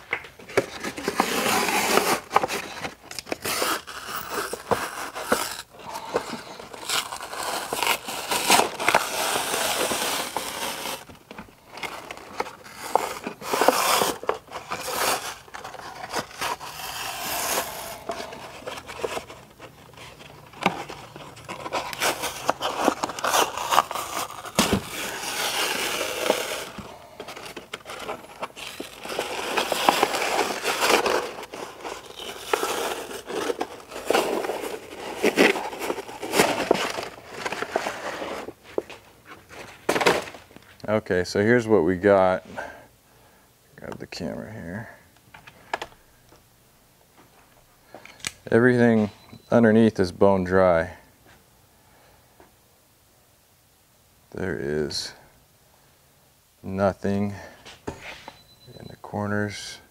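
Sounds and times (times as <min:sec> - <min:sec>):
membrane sheet peeling and crinkling: 0:00.0 - 0:40.8.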